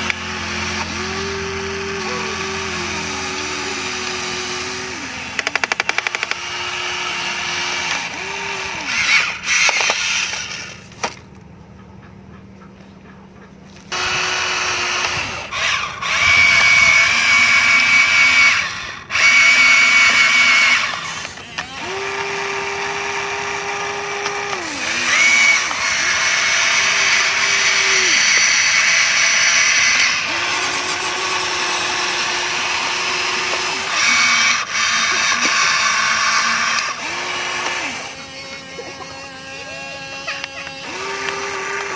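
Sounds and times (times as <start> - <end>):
electric gear motors whining: 0.0 - 11.5, 13.7 - 41.9.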